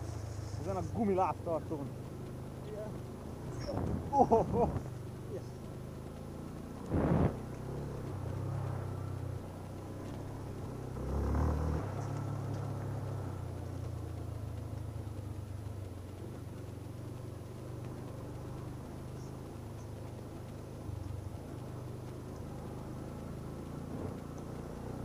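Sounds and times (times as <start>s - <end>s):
motorcycle engine running: 0.0s - 25.0s
loud thump: 6.9s - 7.3s.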